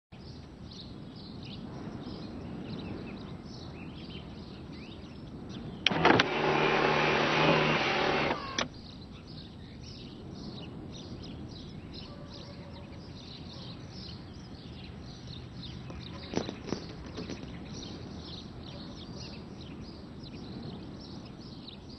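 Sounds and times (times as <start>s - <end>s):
small birds chirping: 0.2s - 21.9s
mechanical whirring: 5.8s - 8.8s
sharp clicks: 5.8s - 8.8s.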